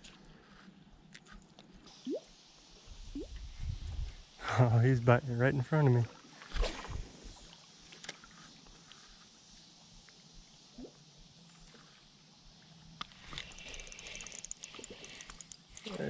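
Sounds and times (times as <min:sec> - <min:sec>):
creek water sloshing: 0:05.9 - 0:08.3
water splashing: 0:06.0 - 0:07.2
fishing reel ticking: 0:13.0 - 0:16.0.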